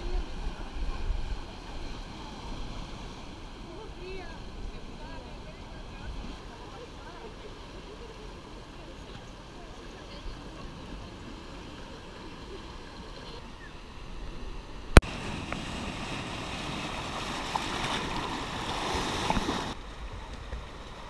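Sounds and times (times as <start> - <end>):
surf breaking over rocks: 14.0 - 21.0.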